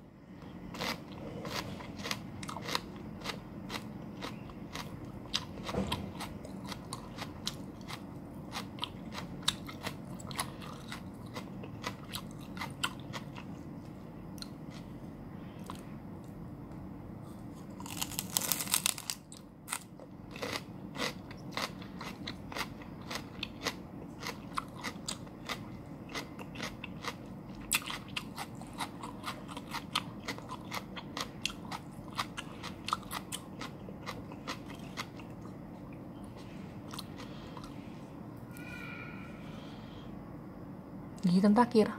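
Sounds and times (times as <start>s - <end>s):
celery crunching: 0.8s - 13.5s, 17.3s - 25.6s.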